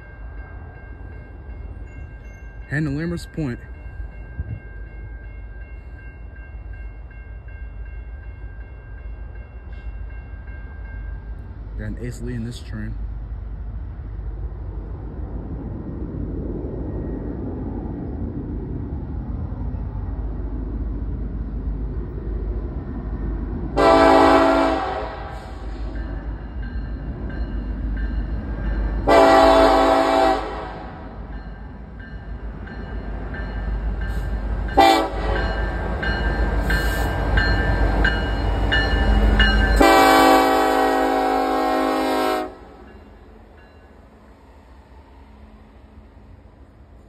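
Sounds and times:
diesel train rumble: 0.0 - 47.0
locomotive air horn blasts: 23.8 - 25.6, 29.0 - 30.9, 34.8 - 35.4, 39.8 - 42.8.

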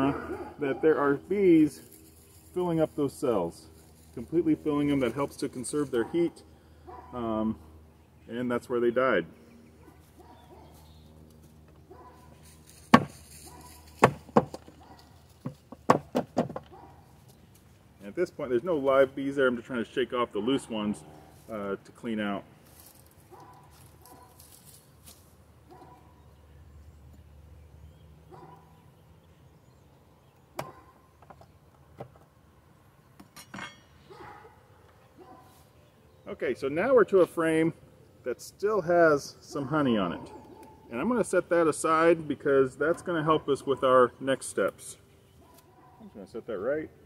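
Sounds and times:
wooden frame knocking on hive: 14.0 - 14.6.

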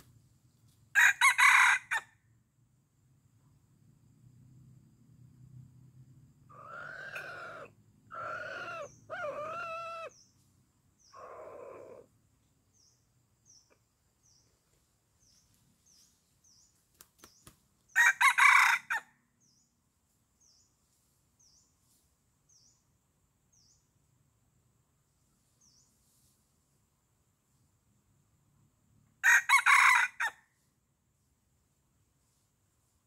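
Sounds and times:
rooster crowing: 0.9 - 2.1, 18.0 - 19.1, 29.2 - 30.4.

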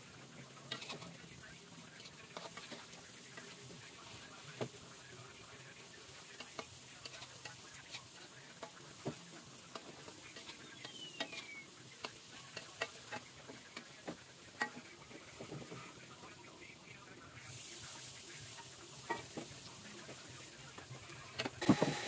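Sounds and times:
fritters sizzling in a wok: 0.0 - 22.0
metal spatula scraping a wok: 0.5 - 4.2, 6.1 - 15.9.

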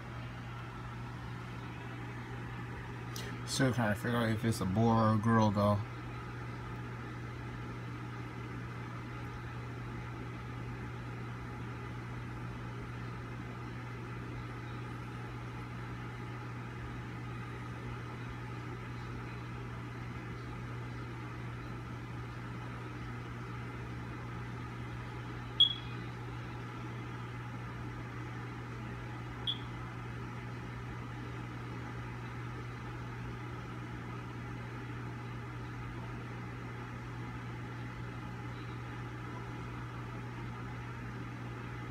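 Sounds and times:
low hum with faint hiss: 0.0 - 41.9
short high-pitched chirps: 25.6 - 26.0, 29.5 - 29.7.

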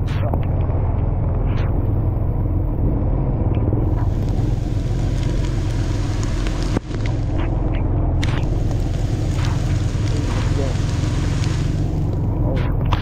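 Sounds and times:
motorbike engine rumble: 0.0 - 13.0
wind buffeting microphone: 0.0 - 13.0
heavy rain and water spray: 3.7 - 13.0.

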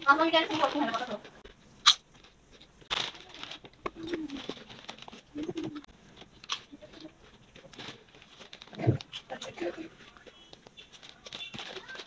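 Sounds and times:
chip bag rustling: 0.1 - 1.5, 2.1 - 12.0.

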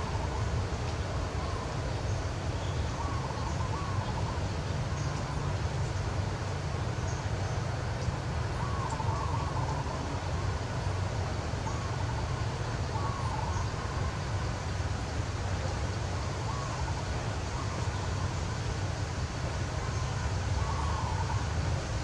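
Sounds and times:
low outdoor rumble: 0.0 - 22.0
faint wavering calls: 1.3 - 5.5, 8.6 - 10.6, 11.6 - 14.7, 15.7 - 18.8, 19.7 - 21.9.

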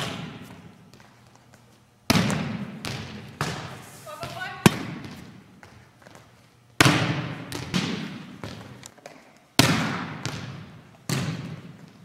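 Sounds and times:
volleyball smacking gym floor: 2.1 - 6.2, 6.8 - 12.0.

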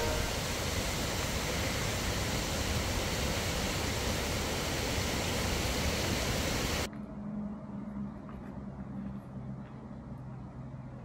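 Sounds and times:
rushing water: 0.0 - 6.9.

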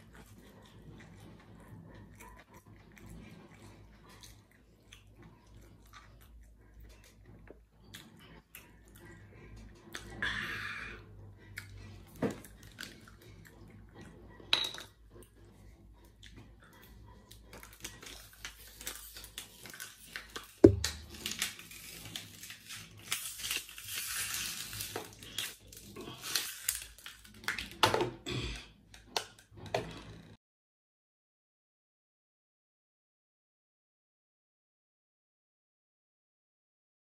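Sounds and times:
sharp thump: 20.6 - 21.0.

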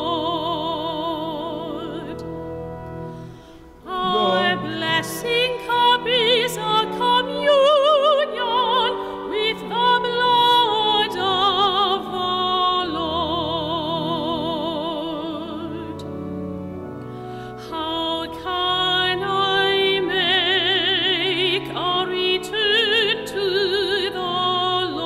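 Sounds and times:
sustained accompaniment: 0.0 - 25.0
operatic solo singing: 3.8 - 8.5.

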